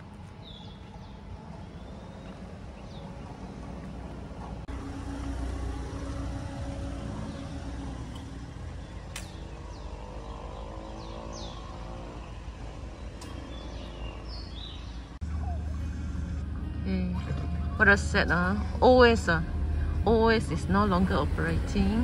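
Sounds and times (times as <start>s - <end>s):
low rumble: 0.0s - 10.3s, 12.3s - 22.0s
vehicle engine hum: 0.0s - 22.0s
bird chirps: 6.9s - 16.4s
sharp clicks: 9.1s - 9.5s.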